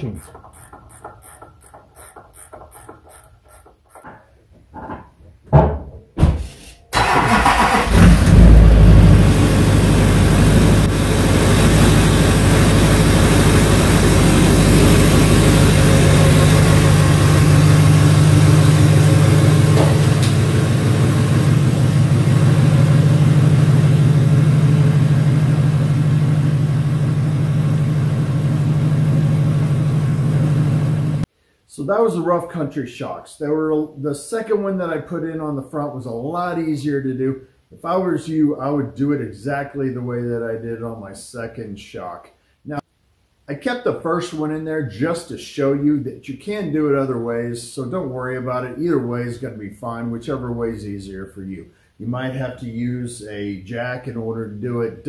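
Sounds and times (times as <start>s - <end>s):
diesel engine starting and idling: 6.9s - 31.3s.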